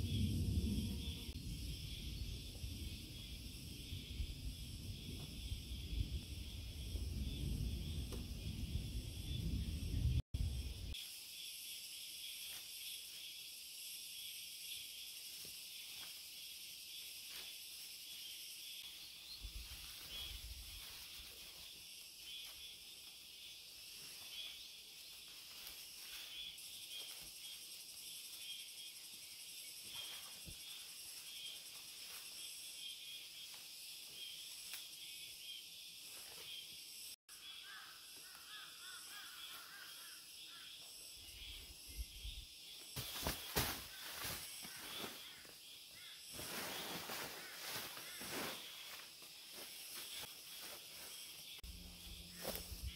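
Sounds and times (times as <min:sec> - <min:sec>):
branches snapping and rustling: 0:43.0 - 0:45.3.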